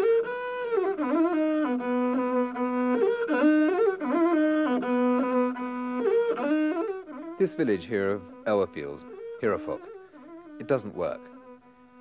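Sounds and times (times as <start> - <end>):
bowed one-string fiddle melody: 0.0 - 12.0.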